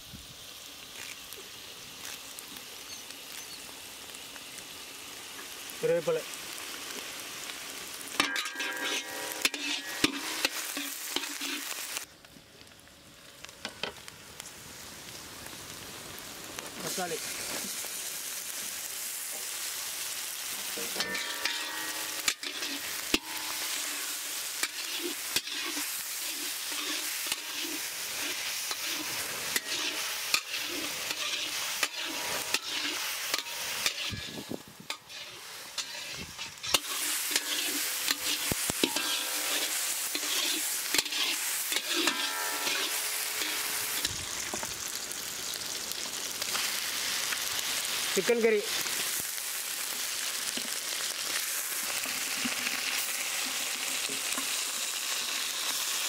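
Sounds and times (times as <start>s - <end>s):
vegetables sizzling in hot oil: 0.0s - 56.0s
metal ladle scraping a pan: 8.2s - 11.8s, 20.8s - 44.2s.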